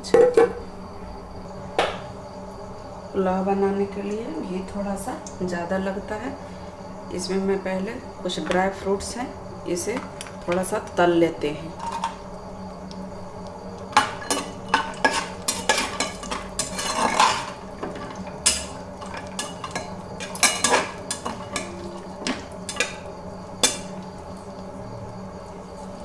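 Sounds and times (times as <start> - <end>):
ghee sizzling: 0.6 - 26.0
metal spoon scraping pot: 14.0 - 23.0.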